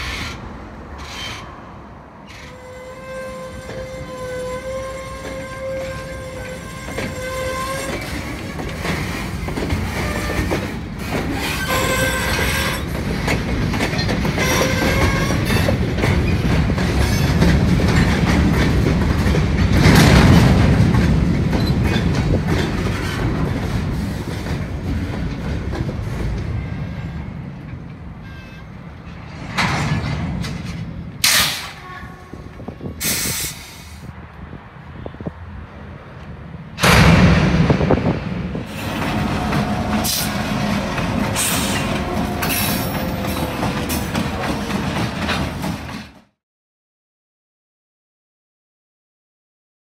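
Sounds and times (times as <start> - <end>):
wheel squeal: 1.0 - 1.5, 11.4 - 12.9, 28.2 - 28.7
train wheels clattering on rails: 2.2 - 33.8, 36.2 - 46.4.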